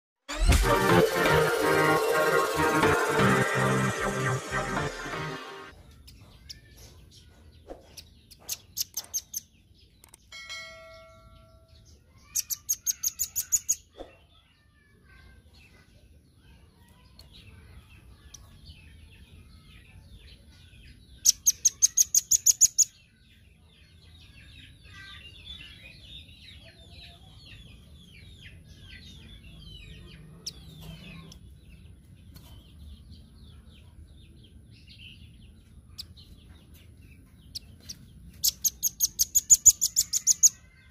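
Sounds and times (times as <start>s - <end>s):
bird trills: 7.9s - 14.2s, 21.2s - 23.0s, 37.5s - 40.8s
soft bird twittering: 10.9s - 40.9s.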